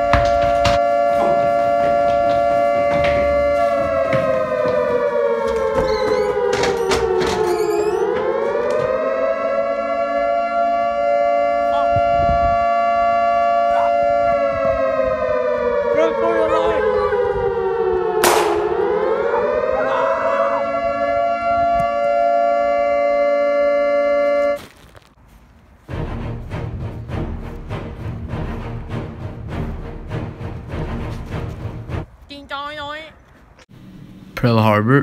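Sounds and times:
air-raid siren wailing: 0:00.0 - 0:24.7.

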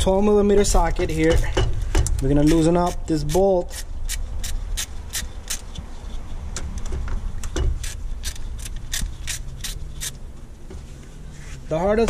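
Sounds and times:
hand ratchet clicking: 0:01.9 - 0:05.8, 0:06.8 - 0:10.2.

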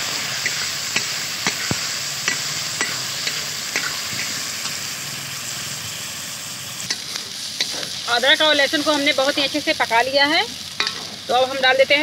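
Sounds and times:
paste sizzling in hot oil: 0:00.0 - 0:12.0
metal spatula scraping a pan: 0:06.9 - 0:08.0.

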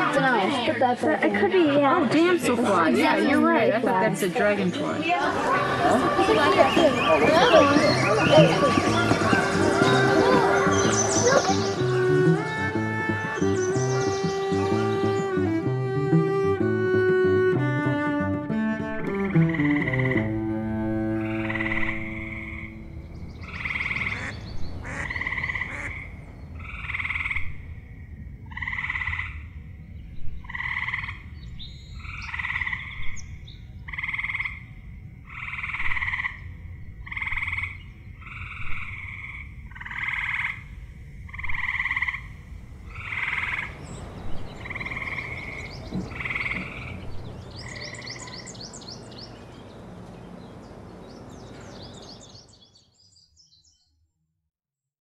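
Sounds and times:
frogs calling: 0:06.0 - 0:49.6
low steady background rumble: 0:14.4 - 0:52.5.

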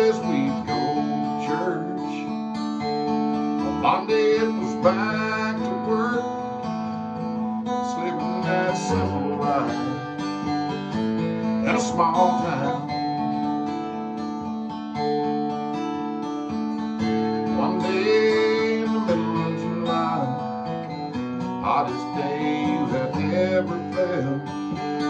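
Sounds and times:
man singing: 0:00.0 - 0:02.4, 0:03.6 - 0:06.7, 0:07.7 - 0:10.5, 0:11.6 - 0:13.3, 0:17.0 - 0:25.0
acoustic guitar strumming: 0:00.0 - 0:25.0.

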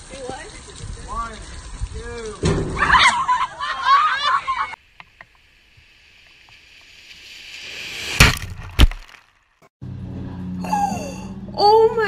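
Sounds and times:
car tyres hissing on wet road: 0:05.8 - 0:08.2.

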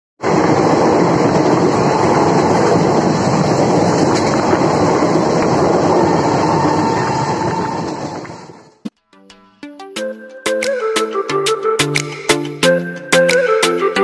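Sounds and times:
train wheels rumbling on rails: 0:00.2 - 0:08.9.

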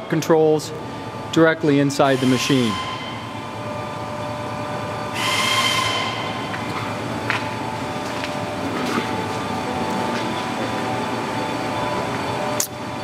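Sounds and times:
industrial machinery hum: 0:00.0 - 0:13.0
high whining tones: 0:00.9 - 0:08.2
loud hiss with shrill tone: 0:02.0 - 0:03.2.

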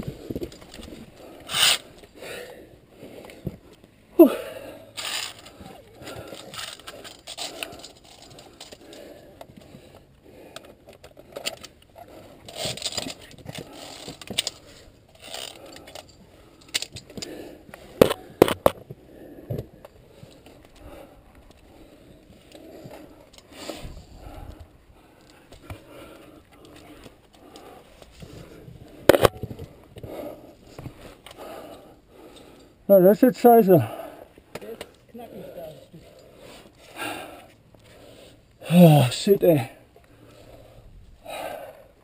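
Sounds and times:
carabiners clinking on steel cable: 0:04.9 - 0:09.2, 0:10.9 - 0:17.3.

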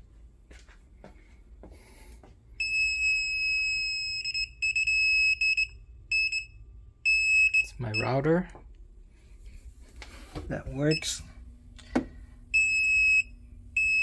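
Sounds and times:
detector alarm beeping: 0:02.6 - 0:08.4, 0:10.7 - 0:11.4, 0:12.5 - 0:14.0.

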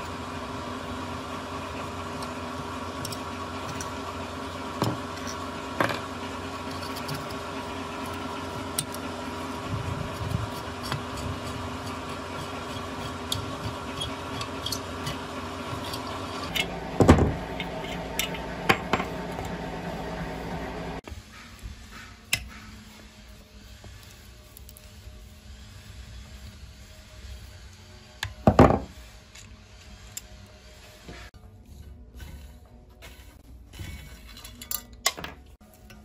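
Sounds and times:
steel tool clicking on engine: 0:00.0 - 0:19.6
steady mechanical hum: 0:00.0 - 0:36.0.

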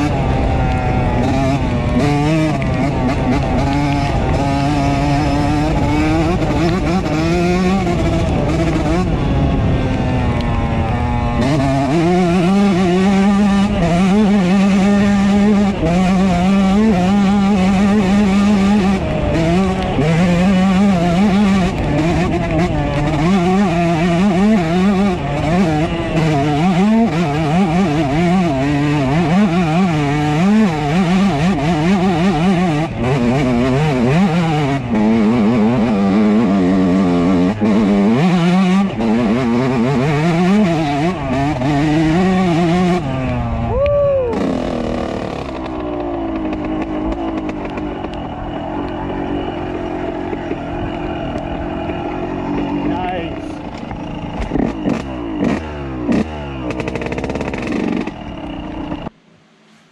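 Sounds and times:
two-stroke motorcycle engine revving: 0:00.0 - 0:59.2.

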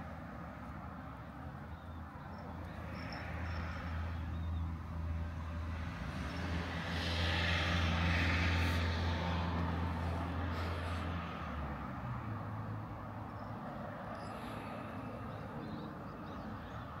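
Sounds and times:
passing vehicle: 0:00.0 - 0:17.0
traffic engine hum: 0:00.0 - 0:17.0.

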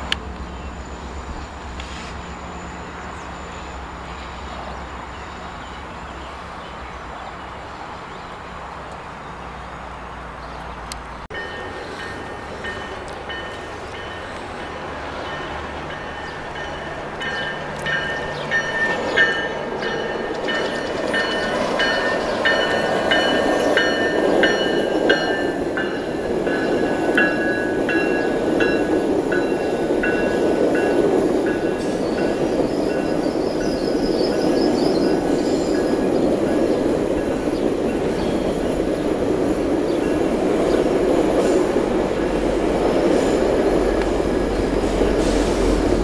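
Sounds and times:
train rumbling past: 0:00.0 - 0:46.0
high ringing tone: 0:11.3 - 0:36.6.

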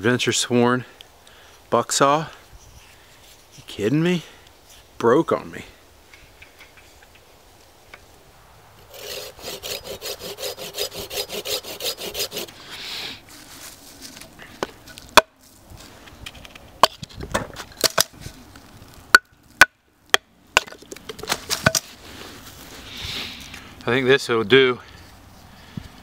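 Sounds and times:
blade rasping through wood: 0:08.9 - 0:12.8.

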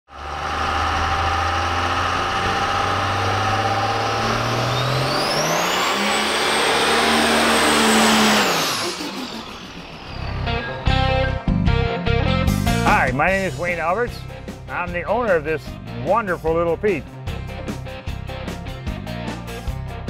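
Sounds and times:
diesel truck engine revving: 0:00.1 - 0:11.8
high turbo whistle: 0:00.4 - 0:11.5.

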